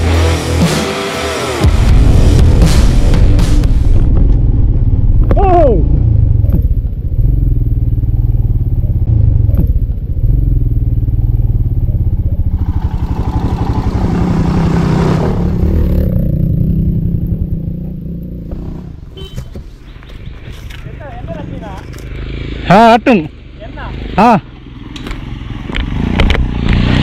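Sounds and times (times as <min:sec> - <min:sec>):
motorcycle engine under load: 0:04.2 - 0:22.9.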